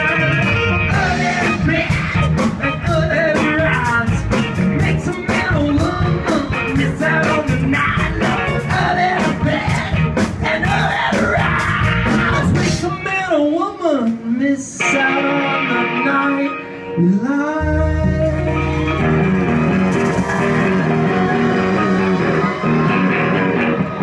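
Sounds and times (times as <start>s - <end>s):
man singing into a microphone: 0.0s - 9.6s, 10.6s - 20.0s
live rock band playing: 0.0s - 24.0s.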